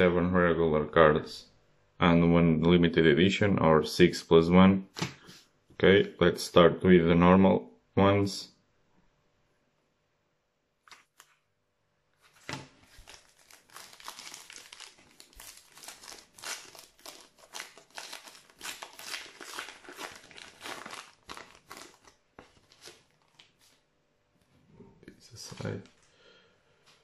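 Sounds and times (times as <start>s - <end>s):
plastic wrapper crinkling: 12.2s - 23.9s.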